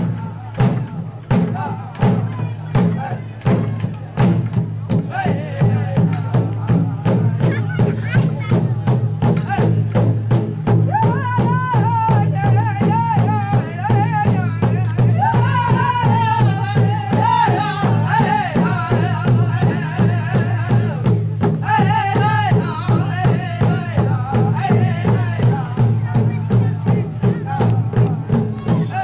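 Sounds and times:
steady drumbeat: 0.0s - 29.0s
high-pitched singing: 21.7s - 29.0s.

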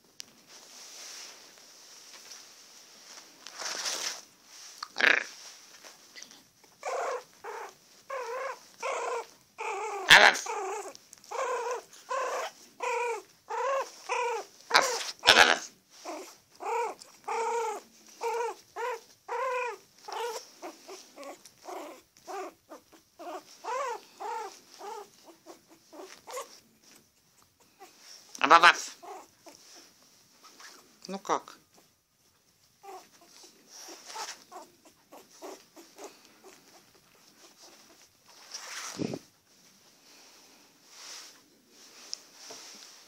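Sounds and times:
puppy whimpering: 6.8s - 29.9s, 32.8s - 39.3s.

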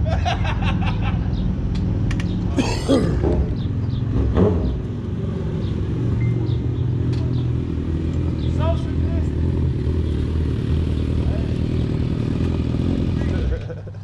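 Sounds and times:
motorcycle engines idling: 4.8s - 14.0s.

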